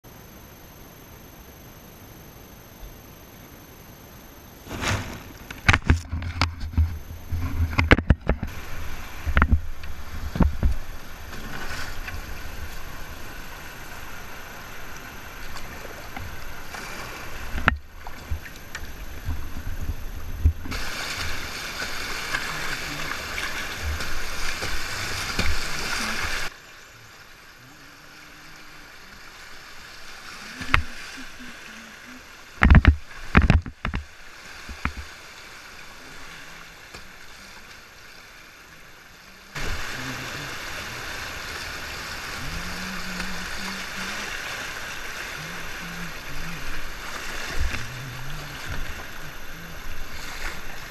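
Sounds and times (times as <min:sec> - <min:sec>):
paddle strokes and splashing: 0:04.6 - 0:50.9
whitewater river rushing: 0:20.7 - 0:26.5, 0:39.4 - 0:50.9.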